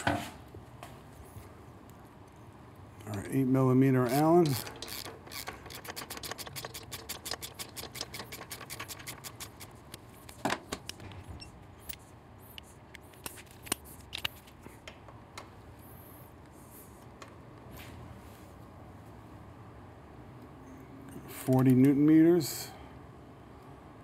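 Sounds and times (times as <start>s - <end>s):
ratchet clicking rapidly: 4.0s - 10.0s.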